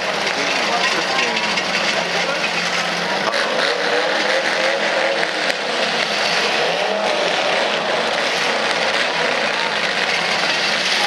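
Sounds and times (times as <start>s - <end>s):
car engines revving: 0.0s - 11.0s.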